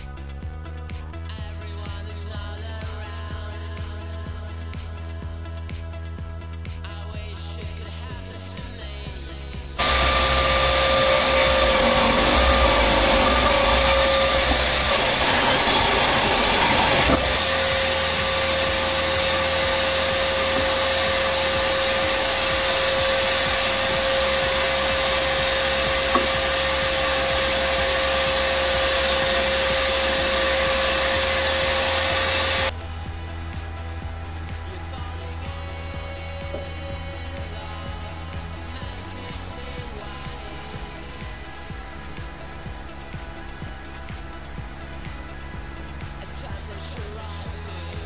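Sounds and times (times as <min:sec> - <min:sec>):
thickness planer whining: 0:09.8 - 0:32.8.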